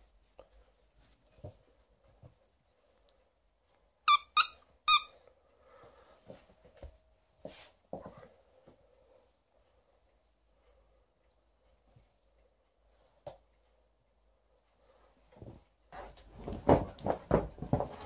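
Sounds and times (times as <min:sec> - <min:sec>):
soft knocks and rustling: 0:00.4 - 0:02.6, 0:06.2 - 0:08.8, 0:15.2 - 0:18.0
dog toy squeaking: 0:04.1 - 0:05.2.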